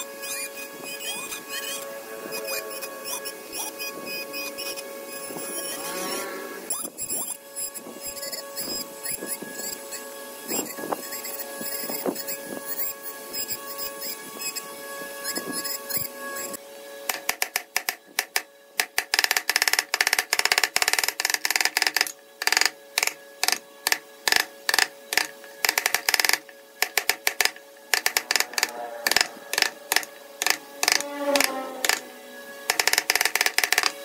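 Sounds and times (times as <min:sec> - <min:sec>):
sharp wooden knocks of chisel: 0:17.1 - 0:32.0.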